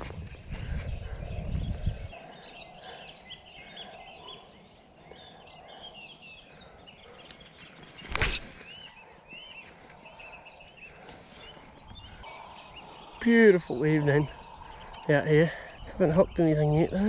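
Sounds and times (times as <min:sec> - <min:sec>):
wind rumble on microphone: 0:00.0 - 0:02.2, 0:11.0 - 0:17.0
small birds chirping: 0:00.0 - 0:17.0.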